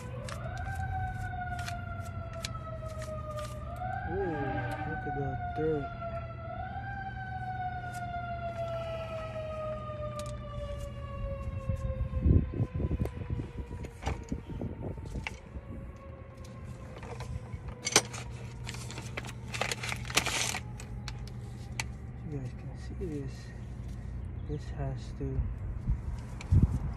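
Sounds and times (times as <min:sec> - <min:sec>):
siren falling in pitch: 0:00.0 - 0:18.7.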